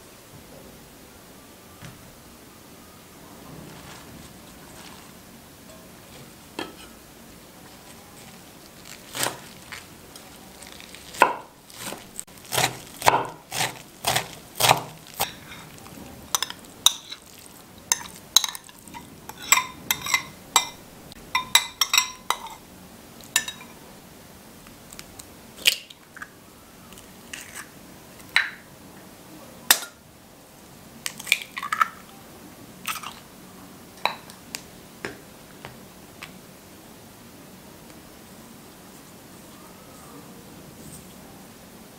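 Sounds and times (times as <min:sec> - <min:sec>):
spoon scraping a glass bowl: 0:13.5 - 0:20.8.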